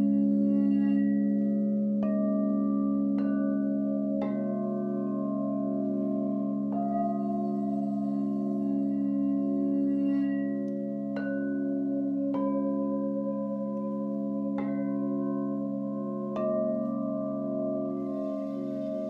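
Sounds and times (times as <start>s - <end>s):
singing bowls ringing: 0.0s - 19.0s.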